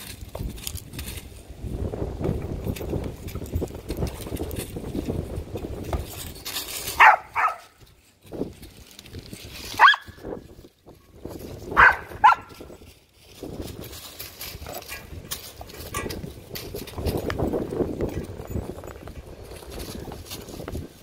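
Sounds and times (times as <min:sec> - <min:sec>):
dog barking: 0:07.0 - 0:07.7, 0:09.8 - 0:10.2, 0:11.8 - 0:12.6.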